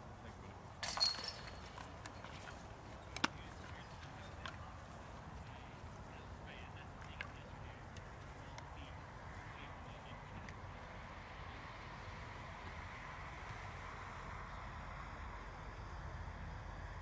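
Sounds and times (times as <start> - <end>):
metallic jangle of chains: 0.8 - 2.6.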